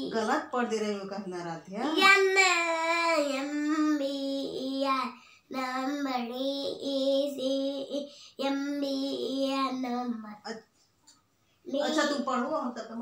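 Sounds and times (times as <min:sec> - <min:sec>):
girl singing: 0:01.9 - 0:10.5.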